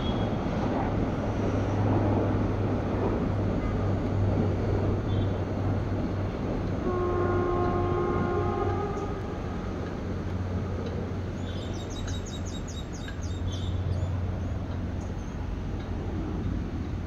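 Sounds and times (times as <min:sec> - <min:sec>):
train horn: 0:06.8 - 0:09.6.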